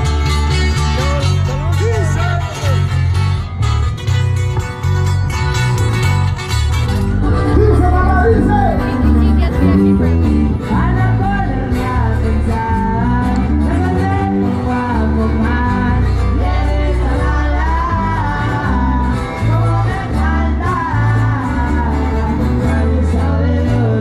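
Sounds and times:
live band music over loudspeakers: 0.0 - 24.0
person singing: 7.2 - 24.0.

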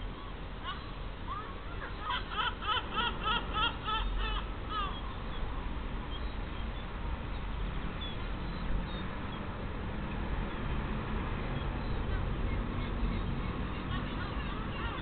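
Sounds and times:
sparrows chirping: 0.0 - 9.6, 11.3 - 15.0
low background rumble: 0.0 - 15.0.

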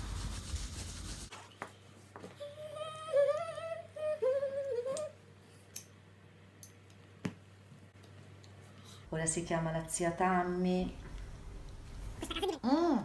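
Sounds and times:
woman humming: 2.4 - 5.2.

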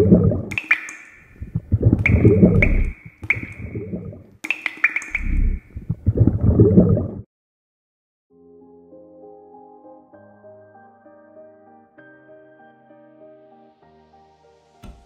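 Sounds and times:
wet liquid splashes: 0.0 - 7.2
ringing drip plinks: 0.5 - 5.6.

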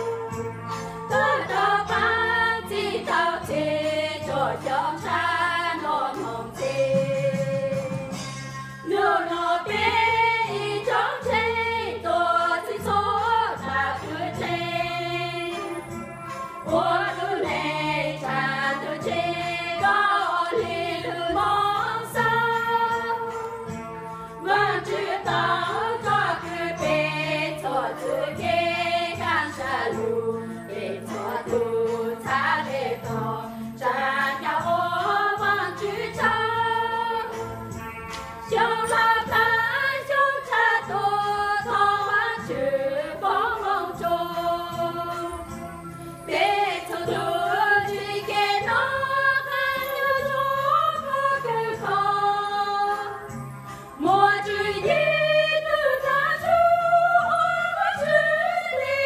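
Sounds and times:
women singing a hymn: 0.0 - 23.8, 24.4 - 37.8, 38.4 - 59.0.

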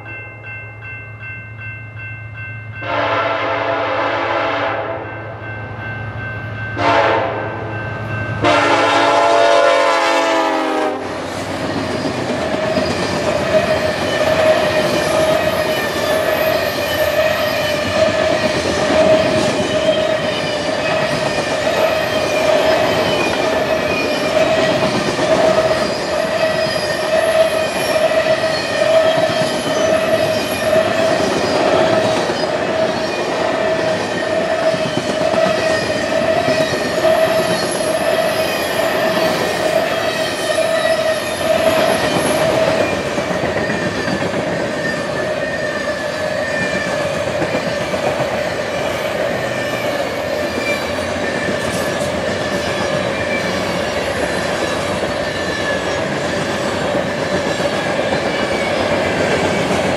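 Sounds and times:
locomotive air horn: 2.8 - 5.0, 6.8 - 7.5, 8.4 - 11.2
train wheels rolling on rail: 7.7 - 59.9.

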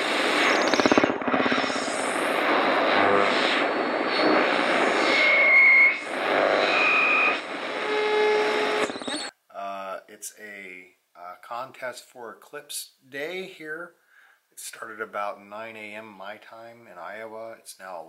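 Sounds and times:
loud rushing static: 0.0 - 9.3.

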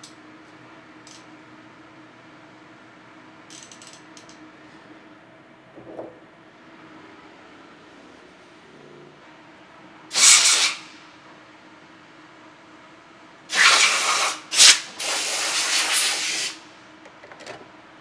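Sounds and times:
compressed air blasting: 10.1 - 11.0, 13.5 - 16.6.

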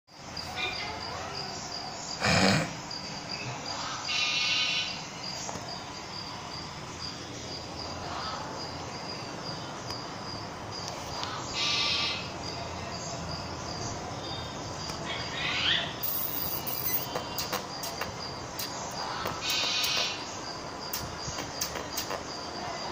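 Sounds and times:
insects chirping: 0.1 - 22.9
bird calls: 0.4 - 10.2, 10.8 - 22.9.

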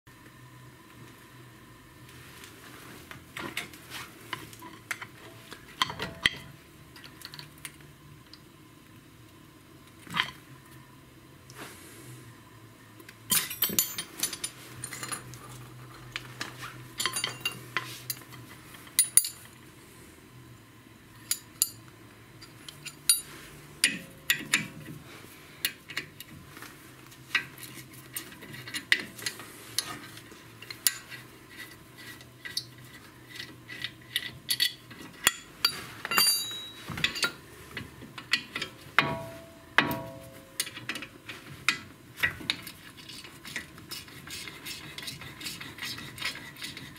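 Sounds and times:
faint low hum: 0.1 - 41.8
wrench clinking on metal bolts: 36.1 - 37.4.

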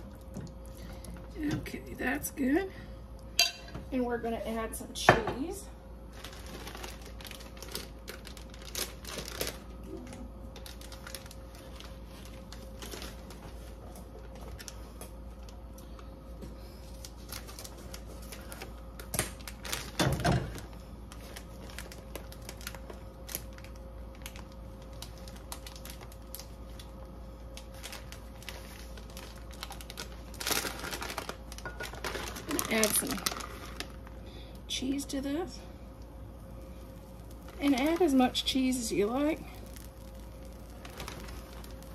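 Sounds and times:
faint steady hum: 0.0 - 41.9
tortilla crackling in a skillet: 6.0 - 15.8, 16.6 - 34.2, 36.0 - 41.9.

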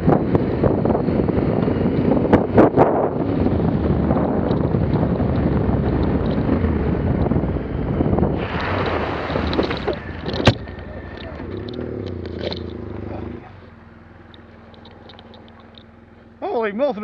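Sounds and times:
wind noise: 0.0 - 13.5
motorcycle engine running: 0.0 - 17.0
tyres hissing through mud: 8.4 - 10.2.

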